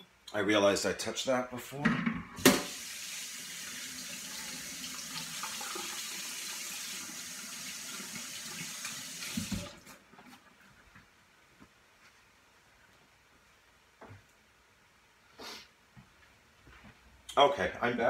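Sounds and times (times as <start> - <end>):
faucet water running: 2.4 - 9.9.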